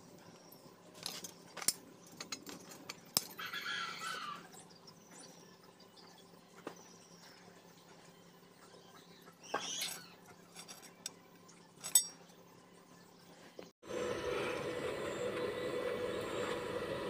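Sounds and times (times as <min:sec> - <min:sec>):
metal blade clinking: 0:11.8 - 0:12.3.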